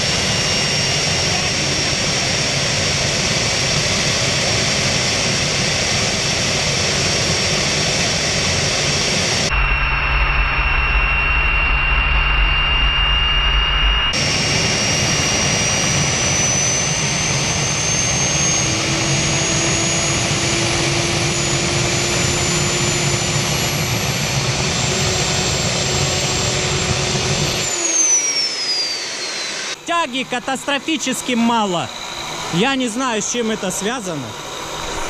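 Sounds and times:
high turbine whine: 0:00.0 - 0:35.0
jet engine roar: 0:00.0 - 0:35.0.

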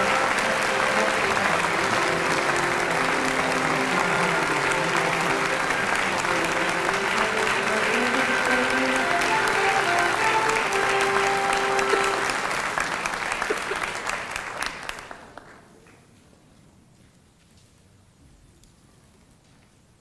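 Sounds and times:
audience applauding: 0:00.0 - 0:15.7.

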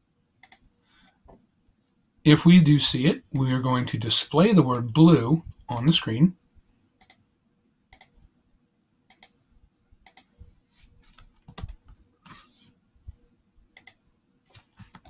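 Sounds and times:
computer mouse clicks: 0:00.4 - 0:01.2, 0:07.0 - 0:07.2, 0:07.9 - 0:08.2, 0:09.1 - 0:09.4, 0:10.0 - 0:10.4, 0:11.2 - 0:12.4, 0:13.8 - 0:15.0.

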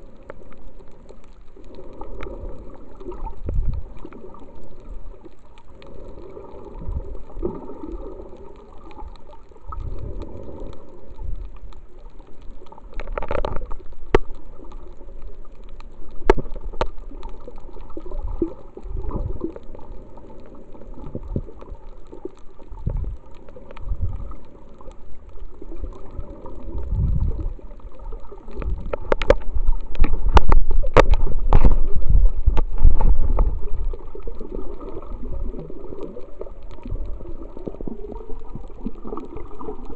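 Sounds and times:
sharp clicks underwater: 0:00.0 - 0:39.9
underwater sloshing and gurgling: 0:00.0 - 0:39.9
underwater low thumps: 0:02.3 - 0:05.1, 0:12.7 - 0:39.9.

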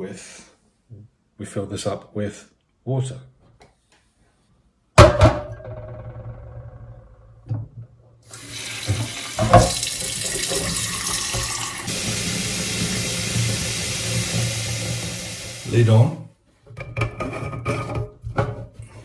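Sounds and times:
tap running into a sink: 0:08.3 - 0:15.7.

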